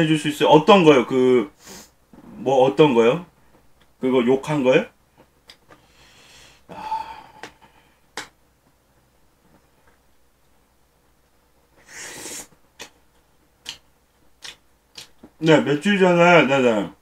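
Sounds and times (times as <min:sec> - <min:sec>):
hissing breath through nose: 0:01.6 - 0:02.0, 0:05.8 - 0:07.4, 0:11.8 - 0:12.5.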